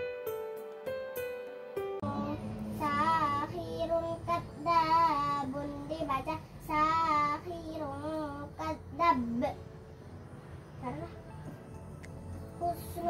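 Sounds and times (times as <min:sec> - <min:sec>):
child singing unaccompanied: 0:02.0 - 0:09.7, 0:10.7 - 0:11.3, 0:12.4 - 0:13.0.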